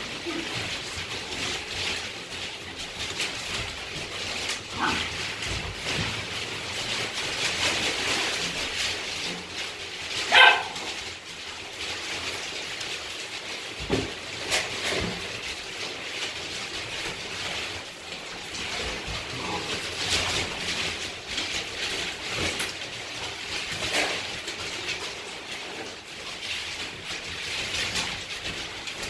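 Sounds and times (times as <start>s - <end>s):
rustle of wood pellets: 0.0s - 29.0s
puppy bark: 4.7s - 5.1s, 10.3s - 11.0s.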